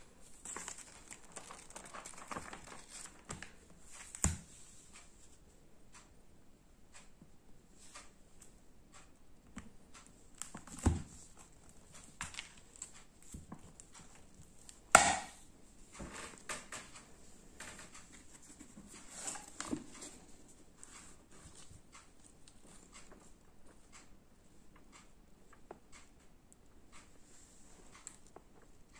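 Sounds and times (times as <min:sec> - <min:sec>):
paper rustling: 0:00.2 - 0:04.8
kitten pawing at a book: 0:15.9 - 0:23.3.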